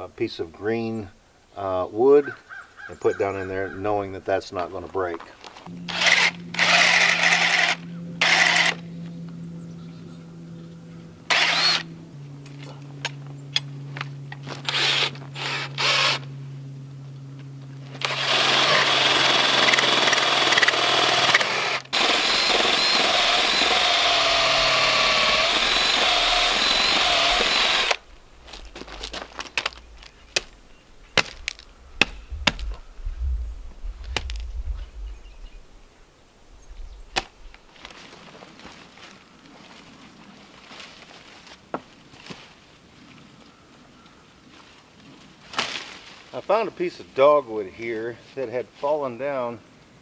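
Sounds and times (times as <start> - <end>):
cordless drill boring wood: 5.9 - 8.8, 11.3 - 11.9, 14.6 - 16.2, 18.0 - 28.0
footsteps crunching dry leaves: 28.0 - 32.9, 37.4 - 46.6
twigs snapping: 28.2 - 32.9, 34.0 - 34.5, 45.5 - 46.2.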